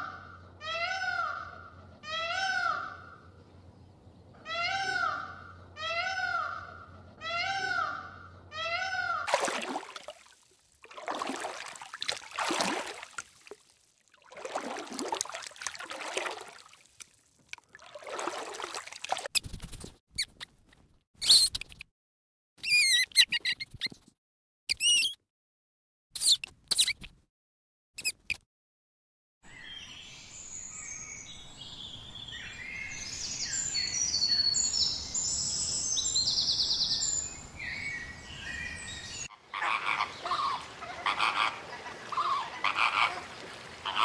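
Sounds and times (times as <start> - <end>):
water splashing and sloshing: 9.2 - 19.4, 39.5 - 44.0
peafowl calling: 39.3 - 44.0.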